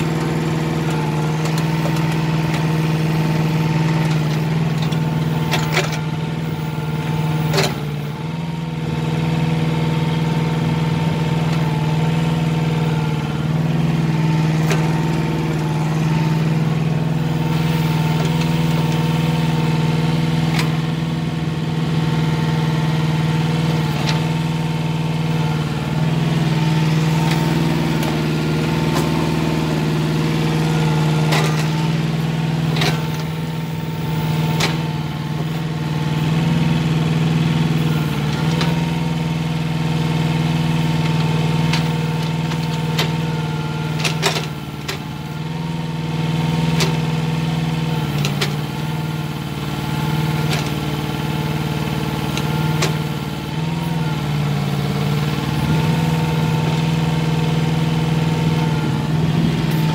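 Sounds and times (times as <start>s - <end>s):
excavator engine running: 0.0s - 59.9s.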